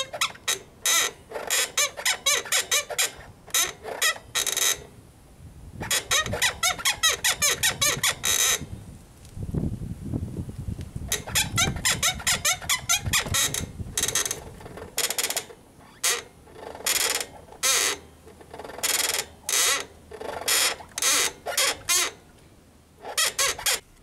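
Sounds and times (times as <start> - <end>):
motorcycle suspension squeaking: 0.0 - 5.0, 5.8 - 8.9, 11.1 - 22.4, 23.0 - 23.9.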